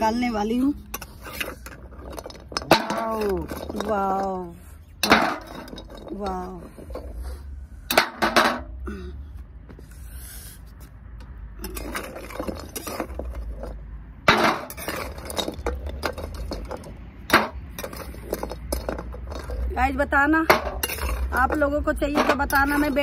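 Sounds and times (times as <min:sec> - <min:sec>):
metal spatula scraping in wok: 0:00.4 - 0:03.9.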